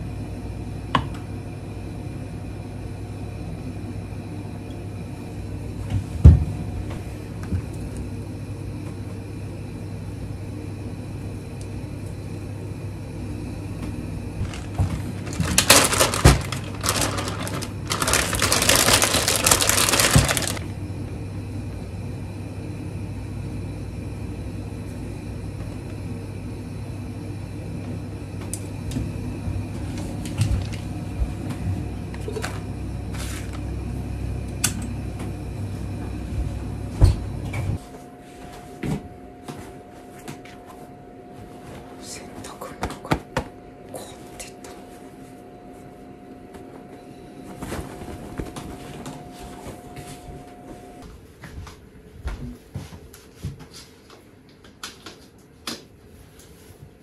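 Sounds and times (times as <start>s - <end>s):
low appliance hum: 0.0s - 57.0s
plastic bag rustling: 14.4s - 20.6s.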